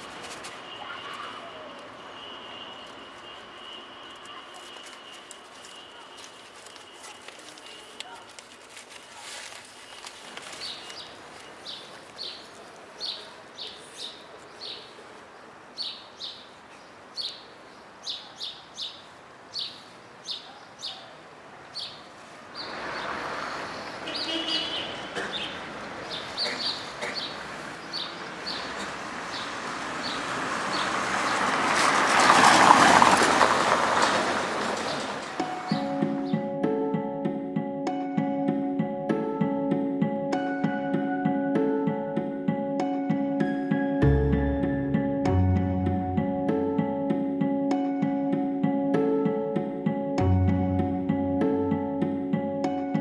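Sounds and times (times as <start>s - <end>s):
small birds chirping: 9.1s - 31.4s.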